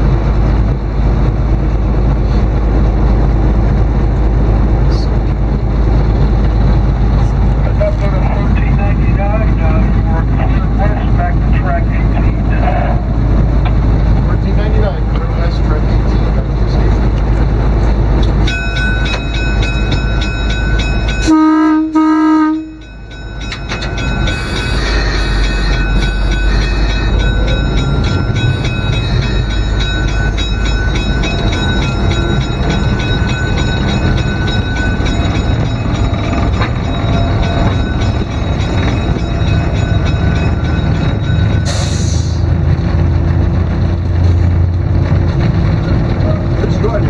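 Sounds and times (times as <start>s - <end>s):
diesel locomotive engine rumbling: 0.0s - 47.0s
locomotive air horn blasts: 21.2s - 22.8s.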